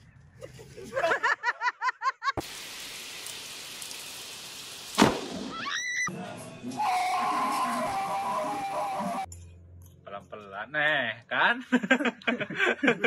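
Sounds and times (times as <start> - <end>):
steady rain: 2.4 - 5.6.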